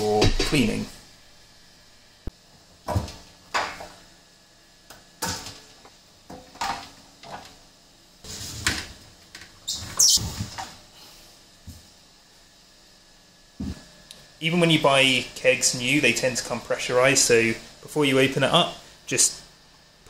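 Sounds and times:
high squeak: 9.7 - 10.2.

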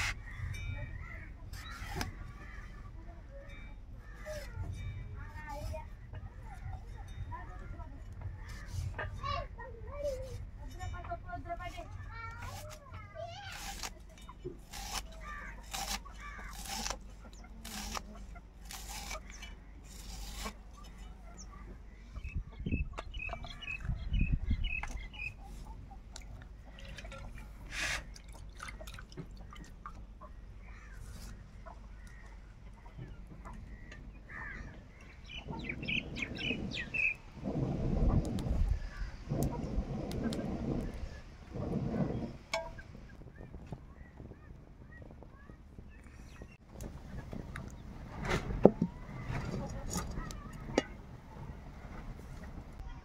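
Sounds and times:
small birds chirping: 0.0 - 28.9, 29.6 - 37.4, 42.0 - 48.0
knife slicing onion: 13.5 - 14.0, 14.6 - 21.0.

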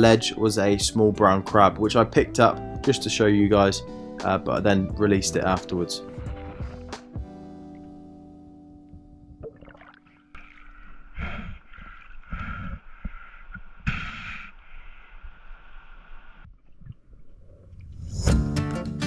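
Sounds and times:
underwater sloshing and gurgling: 6.0 - 8.2, 8.9 - 13.9, 14.6 - 18.3.

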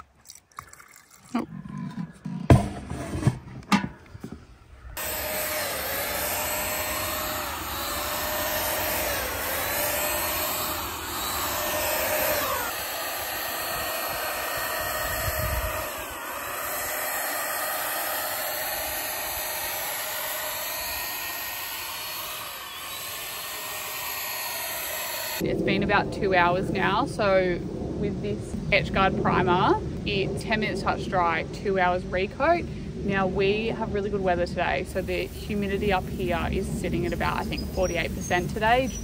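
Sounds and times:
paint spray gun motor whine: 5.0 - 25.4, 35.0 - 39.0.

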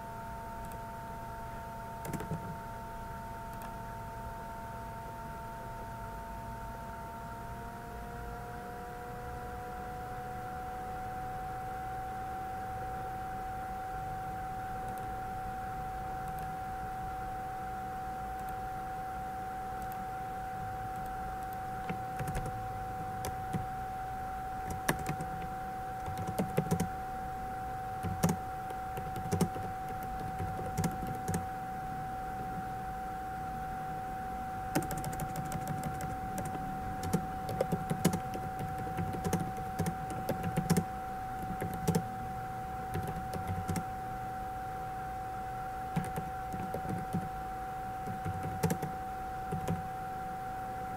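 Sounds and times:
steady background hum: 0.0 - 50.9
keyboard keys clicking: 2.0 - 2.6, 20.9 - 22.6, 24.7 - 26.9, 28.0 - 31.4, 34.7 - 42.1, 42.9 - 43.8, 46.0 - 47.3, 48.0 - 48.9, 49.5 - 49.8.

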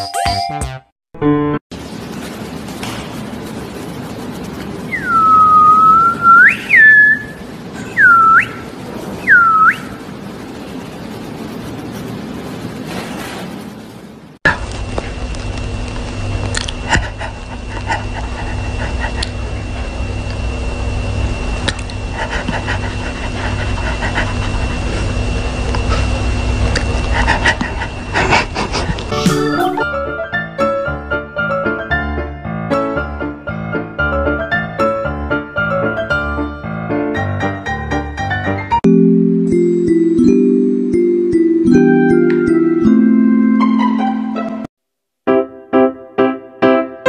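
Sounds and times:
dog panting: 16.8 - 19.9, 22.1 - 25.2, 26.9 - 29.1.

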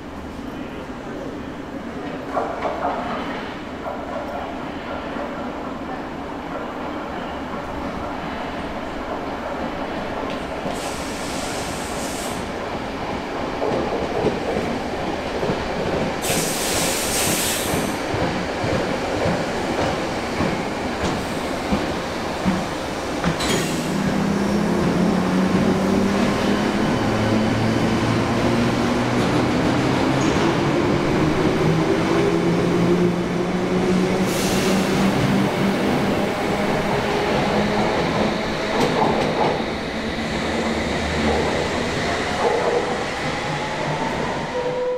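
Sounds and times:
train wheel and rail noise: 0.0 - 44.9
burst of hiss: 10.7 - 12.5, 16.2 - 18.0.

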